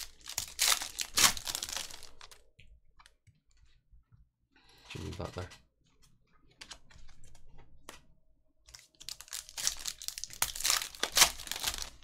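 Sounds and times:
foil pack tearing and crinkling: 0:00.0 - 0:02.4, 0:08.7 - 0:12.0.

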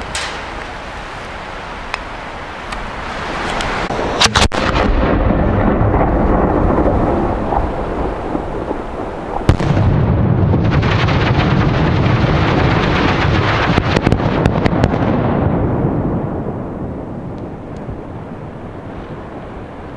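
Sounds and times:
firework shell bang: 0:00.0 - 0:00.9
firecracker cracks: 0:00.0 - 0:01.2.

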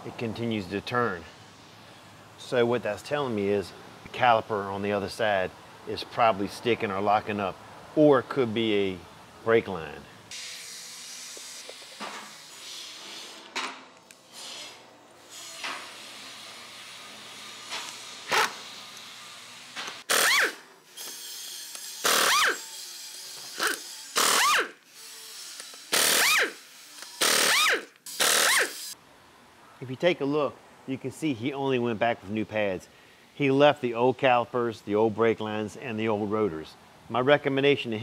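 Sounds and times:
air impact wrench bursts: 0:17.5 - 0:18.8, 0:19.9 - 0:22.8, 0:23.4 - 0:29.0.

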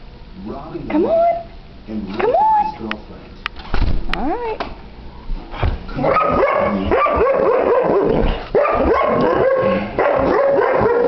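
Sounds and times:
dog barking and yipping: 0:06.0 - 0:11.0.

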